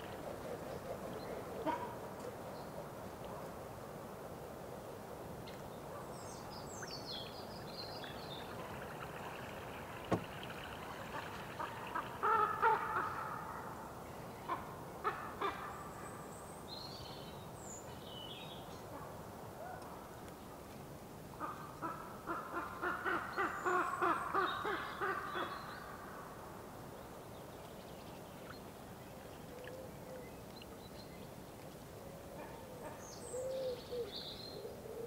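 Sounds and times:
small birds chirping: 5.5s - 12.4s
sharp knocks: 10.1s - 10.3s.

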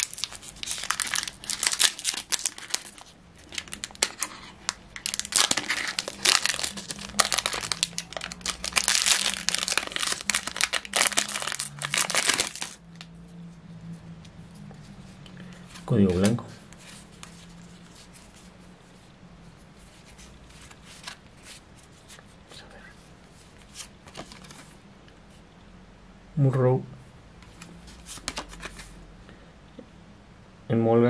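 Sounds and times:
foil wrapper crinkling and tearing: 0.0s - 13.0s.

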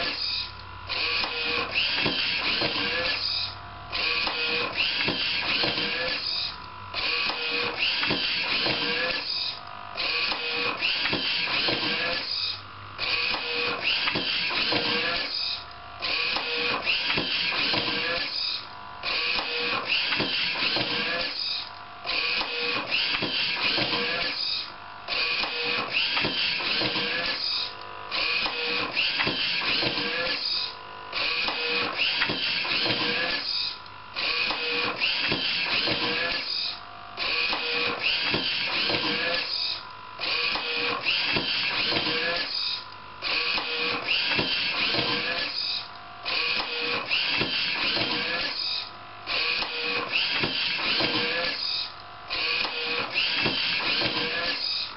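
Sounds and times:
motors whirring: 0.0s - 54.9s.

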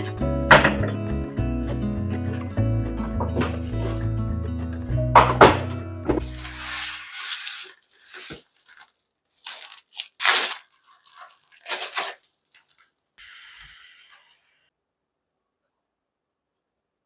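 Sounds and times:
plastic packaging crinkling: 6.2s - 13.2s.

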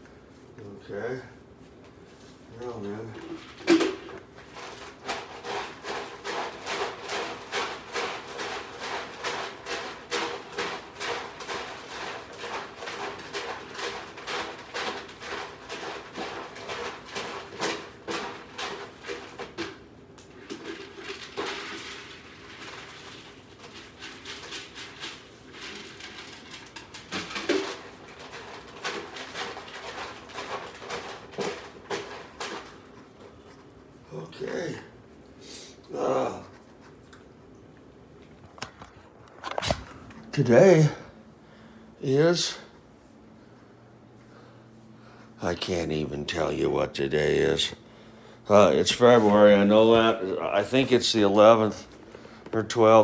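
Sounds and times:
cats chewing and crunching: 4.2s - 34.0s.

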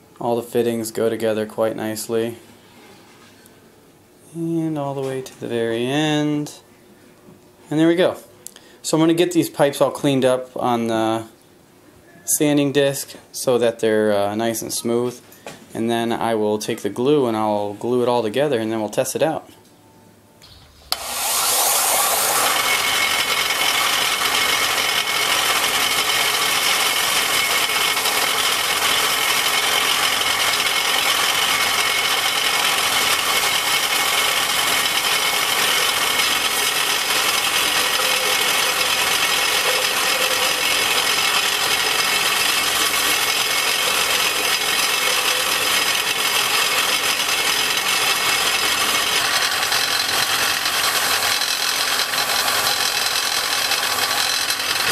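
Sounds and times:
belt sander running: 20.4s - 54.9s
pipe fittings sanded on belt: 20.8s - 54.9s.

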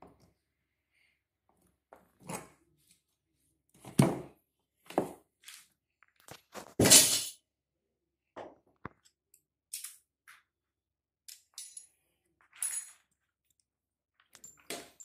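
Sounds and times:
clinks of metal parts: 9.7s - 10.4s, 11.3s - 13.2s, 14.3s - 15.0s.

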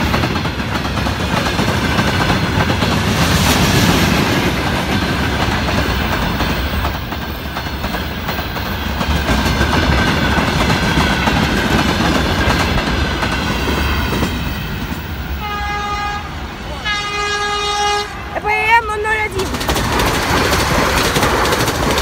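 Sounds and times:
wheels clacking over rail joints: 0.0s - 15.4s, 19.3s - 22.0s
freight wagons rumbling past: 0.0s - 22.0s
train horn blast: 15.3s - 18.4s.

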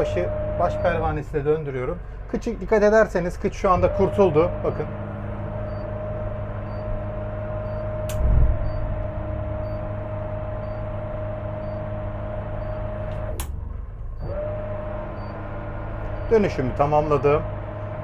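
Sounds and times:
bow thruster whining: 0.0s - 1.6s, 3.6s - 18.0s
low engine hum: 0.0s - 18.0s
thruster switch click: 8.0s - 8.3s
low thump: 8.2s - 8.8s.

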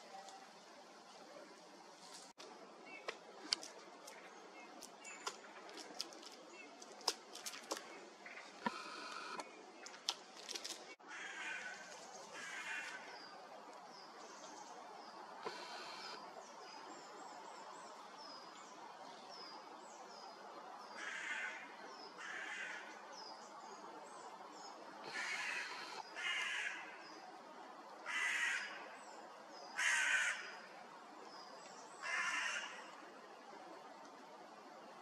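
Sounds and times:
songbirds calling: 10.8s - 27.3s
crow cawing: 11.1s - 11.8s, 12.4s - 13.0s, 21.0s - 21.6s, 25.1s - 26.8s, 28.1s - 28.8s, 29.8s - 30.6s, 32.0s - 32.8s.

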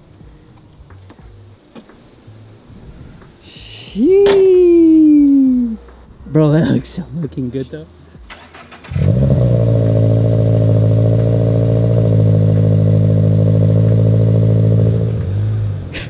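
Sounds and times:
car engine revving: 8.0s - 16.0s.

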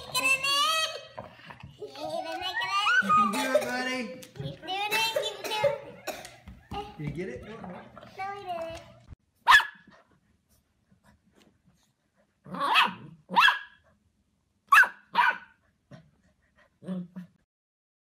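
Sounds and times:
puppy barking: 9.4s - 9.9s, 12.5s - 13.8s, 14.7s - 15.6s.

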